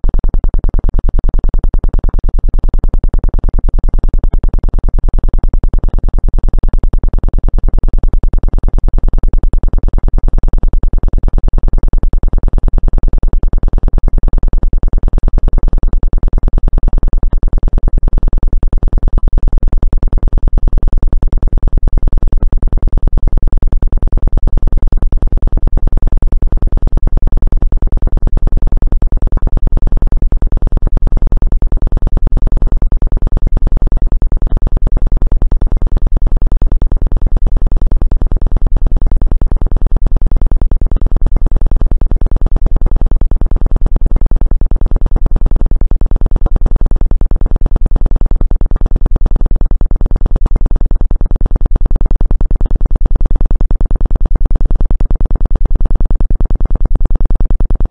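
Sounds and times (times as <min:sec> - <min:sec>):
low buzzing synthesized tone: 0:33.1 - 0:34.8, 0:35.4 - 0:57.9.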